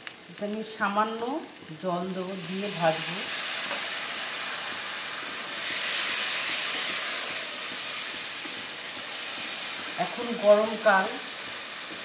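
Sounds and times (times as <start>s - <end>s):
food sizzling in hot oil: 0.0s - 12.0s
wooden spatula stirring pan: 3.3s - 12.0s.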